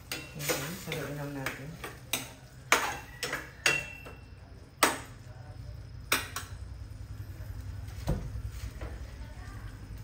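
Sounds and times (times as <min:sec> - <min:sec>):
metal utensil knocking on pot: 0:00.0 - 0:04.2.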